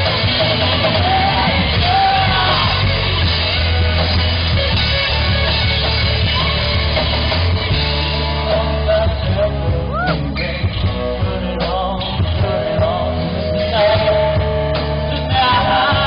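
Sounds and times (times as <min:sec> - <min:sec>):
man singing: 0:00.0 - 0:03.2, 0:08.0 - 0:16.0
bass guitar: 0:00.0 - 0:16.0
drum kit: 0:00.0 - 0:16.0
electric guitars: 0:00.0 - 0:16.0.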